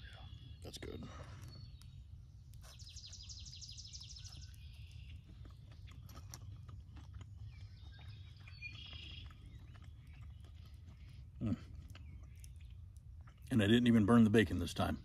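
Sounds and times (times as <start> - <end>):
bird chirping: 0.0 - 15.0.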